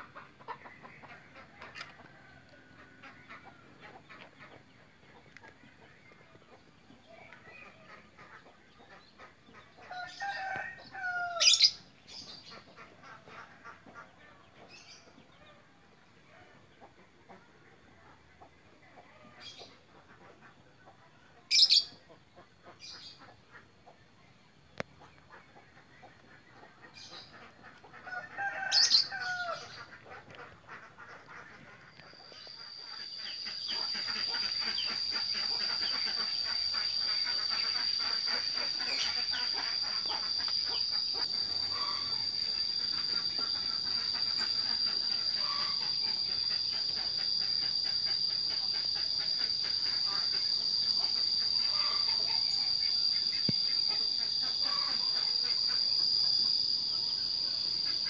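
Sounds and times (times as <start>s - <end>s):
loud bird call: 26.2s - 58.0s
high-pitched insect drone: 27.0s - 58.0s.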